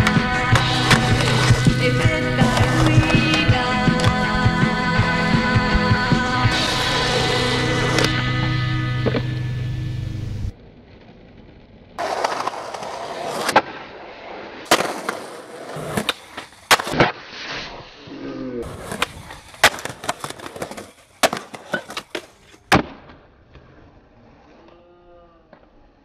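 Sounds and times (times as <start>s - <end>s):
skateboard deck slapping down: 0.0s - 4.5s, 9.0s - 9.4s, 12.0s - 13.9s, 14.7s - 17.3s, 18.6s - 23.6s
skateboard tail popping: 0.0s - 4.5s, 6.5s - 8.2s, 9.0s - 9.5s, 14.6s - 17.3s, 18.7s - 23.9s
skateboard wheels rolling on pavement: 0.0s - 24.7s.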